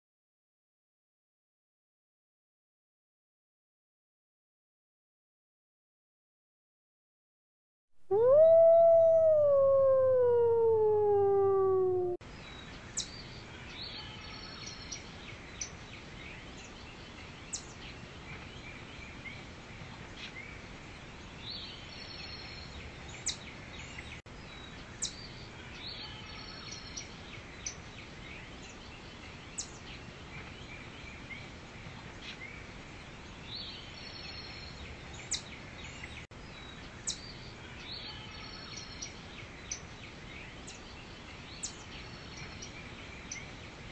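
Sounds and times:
wolf howling: 8.1s - 12.2s.

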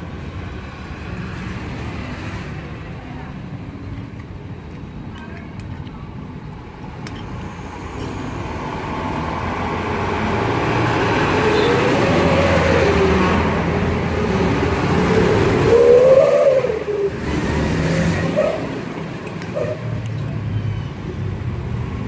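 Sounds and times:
diesel trucks driving past: 6.5s - 22.0s.

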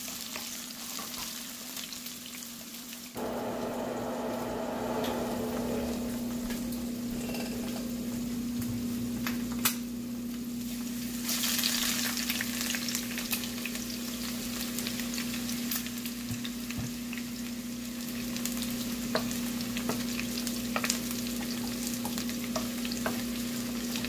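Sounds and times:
vegetables sizzling in oil: 0.0s - 9.6s, 10.2s - 24.0s
steady low hum: 3.2s - 10.4s.

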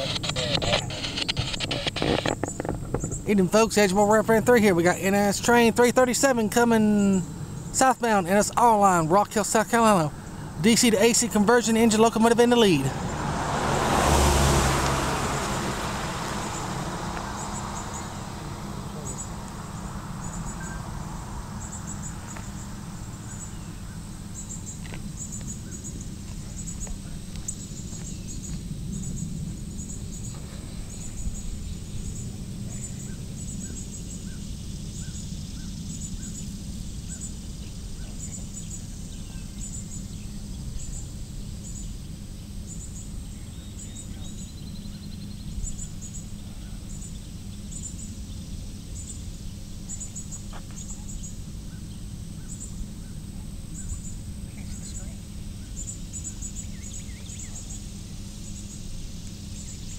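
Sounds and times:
rush of noise: 0.0s - 3.0s, 8.8s - 34.3s
steady low rumble: 0.0s - 59.9s
high bird chirps: 16.2s - 26.9s.

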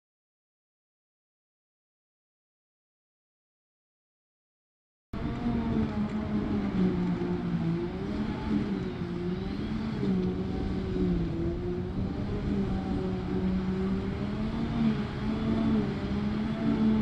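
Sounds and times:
engine drone under load: 5.2s - 17.0s.

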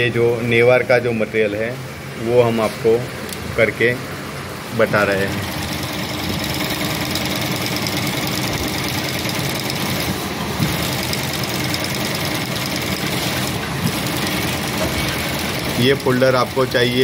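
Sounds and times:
sewing machine stitching: 5.4s - 17.0s.

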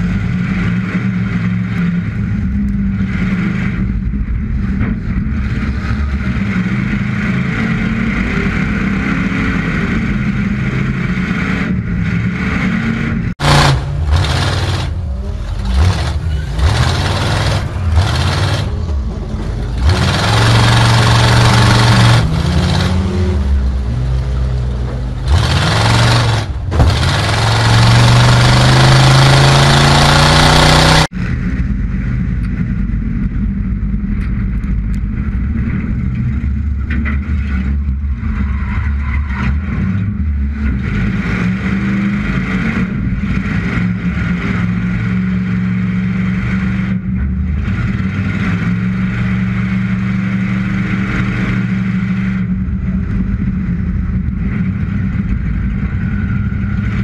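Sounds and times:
racing car engine accelerating: 0.0s - 31.4s
heavy rushing noise: 0.0s - 57.0s.

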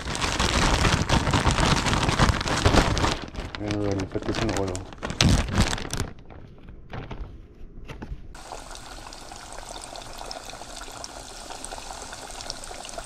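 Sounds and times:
plastic bag rustling: 0.0s - 8.6s
fish sizzling in hot oil: 8.4s - 13.0s.

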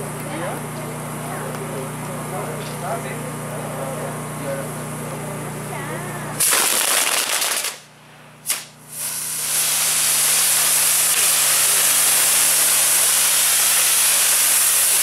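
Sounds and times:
spark fountains hissing: 6.4s - 7.8s, 8.4s - 15.0s
firework sharp crack: 6.4s - 15.0s
fireworks rush: 6.4s - 15.0s.

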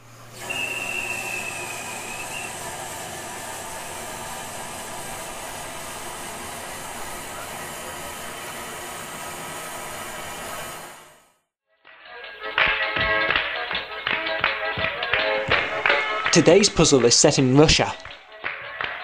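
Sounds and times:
train running: 0.0s - 11.2s.

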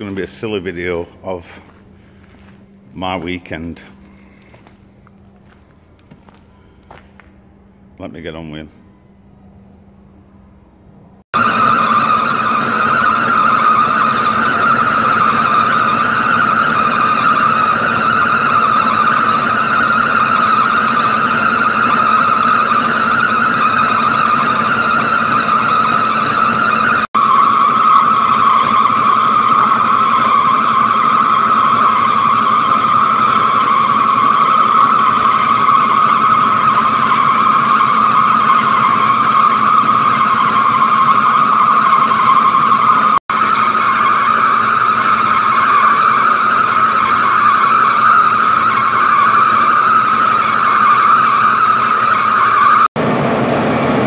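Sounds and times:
low machine hum: 0.0s - 54.0s
lathe tool cutting metal squealing: 11.3s - 52.9s.

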